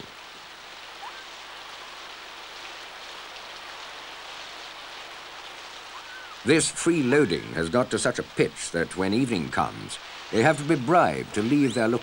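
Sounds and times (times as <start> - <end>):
rain falling: 0.0 - 12.0.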